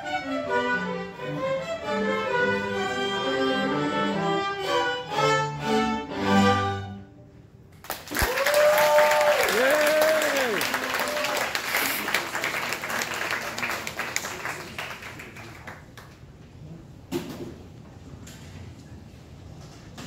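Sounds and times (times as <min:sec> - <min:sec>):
string ensemble playing classical piece: 0:00.0 - 0:07.2.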